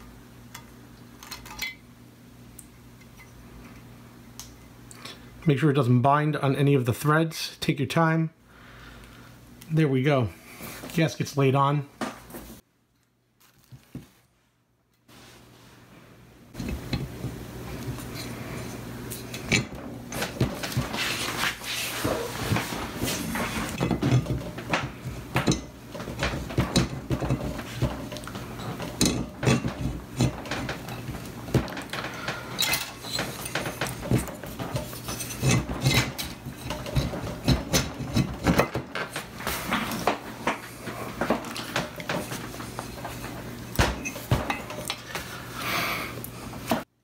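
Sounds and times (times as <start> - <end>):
aluminium parts scraping: 16.6 - 45.6
metal parts clinking and knocking: 23.7 - 39.3.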